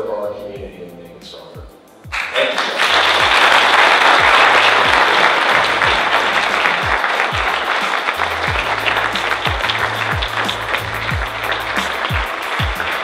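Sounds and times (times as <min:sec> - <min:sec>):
background music with bass line: 0:00.0 - 0:13.0
audience applauding: 0:02.1 - 0:13.0.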